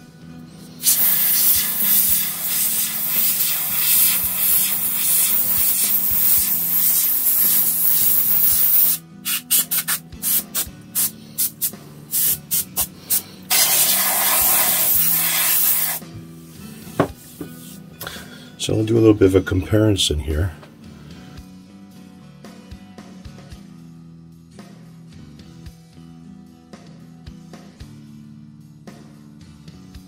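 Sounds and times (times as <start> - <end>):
aerosol spray can hissing: 0.7 - 16.0.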